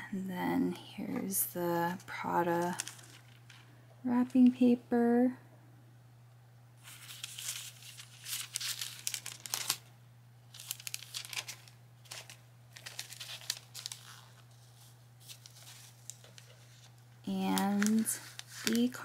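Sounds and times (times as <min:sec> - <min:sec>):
paper wrapping crinkling: 0:02.2 - 0:03.7, 0:06.8 - 0:09.9, 0:10.5 - 0:19.0.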